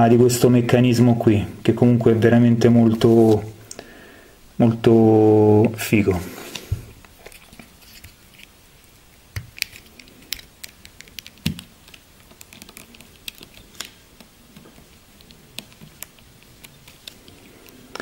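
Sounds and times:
plastic figure clicking and tapping: 9.3s - 18.0s.

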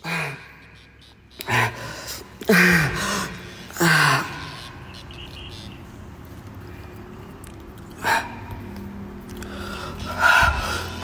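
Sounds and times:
man breathing heavily: 0.0s - 0.8s, 1.4s - 4.6s, 7.9s - 11.0s
man gasping: 1.5s - 4.4s.

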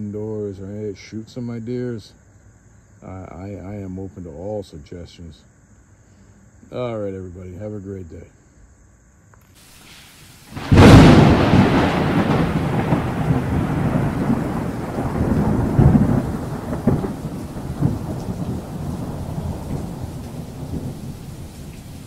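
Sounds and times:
steady rain: 9.6s - 22.0s
thunder rumbling: 9.7s - 22.0s.

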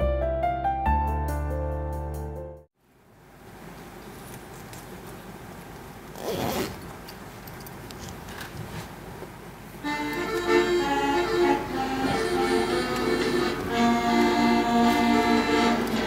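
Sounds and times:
music of long held notes: 9.8s - 16.0s.

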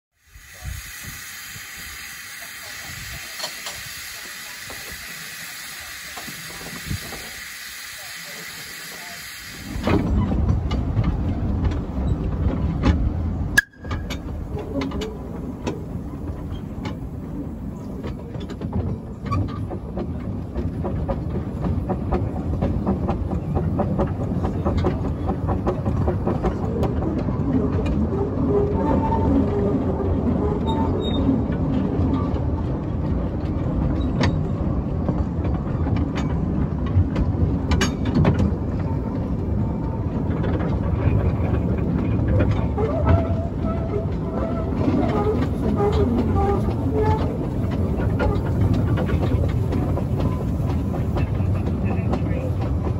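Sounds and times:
steam hissing: 0.2s - 10.2s
train rumble: 0.2s - 52.9s
wheels clicking on rails: 0.6s - 52.9s.

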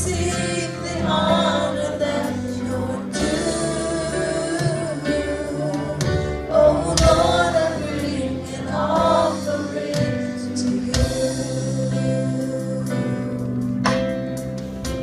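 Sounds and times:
people singing gospel: 0.0s - 13.5s
band with drums and electric guitar: 0.0s - 15.0s
drum strikes: 6.0s - 8.1s.

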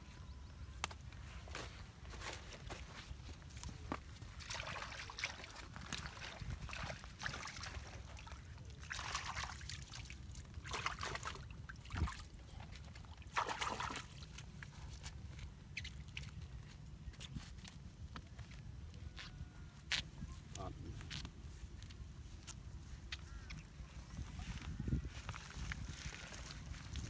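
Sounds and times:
hands splashing in muddy water: 13.2s - 14.2s.

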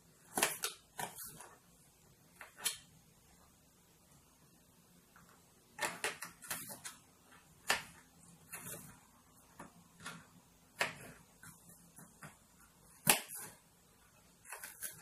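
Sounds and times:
knife chopping on plastic board: 0.2s - 1.4s, 7.6s - 8.9s, 9.5s - 13.6s.

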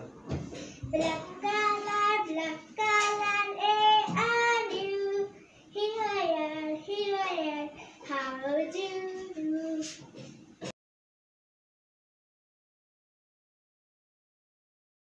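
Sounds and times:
girl singing into a microphone: 0.7s - 10.1s.

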